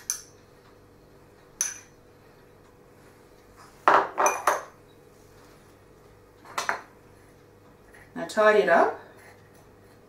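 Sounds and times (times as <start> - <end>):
metal spoon clinking against bowl: 0.0 - 0.4, 1.6 - 2.0, 4.2 - 4.7.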